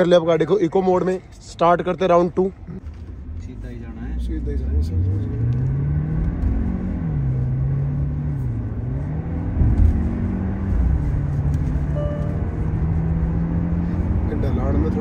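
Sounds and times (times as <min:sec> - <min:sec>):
road rumble: 0:00.0 - 0:15.0
car engine accelerating: 0:02.7 - 0:15.0
gear change thump: 0:09.4 - 0:13.2.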